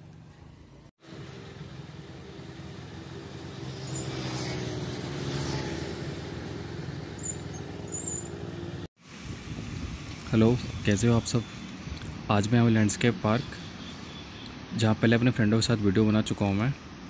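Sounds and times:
road noise: 0.0 - 17.0
rushing wind: 9.0 - 12.4.

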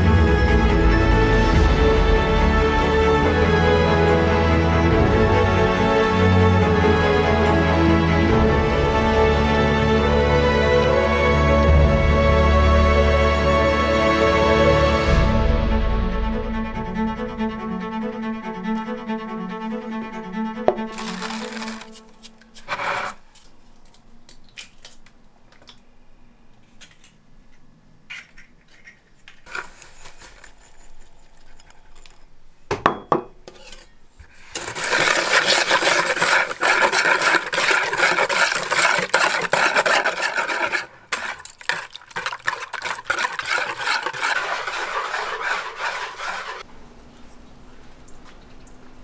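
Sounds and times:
whisk beating in a bowl: 34.6 - 46.6.

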